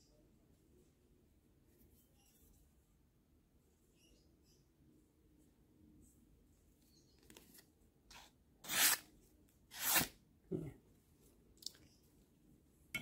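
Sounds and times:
knife slicing paper: 8.1 - 9.1, 9.7 - 10.1.

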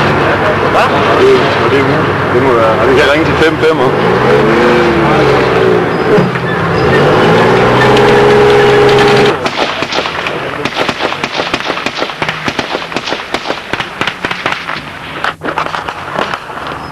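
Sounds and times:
vehicle engine running: 0.0 - 16.9
small-arms gunfire: 8.9 - 16.6.

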